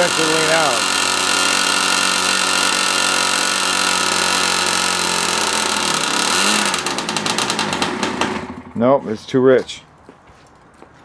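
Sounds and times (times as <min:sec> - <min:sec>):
model airplane engine running: 0:00.0 - 0:08.7.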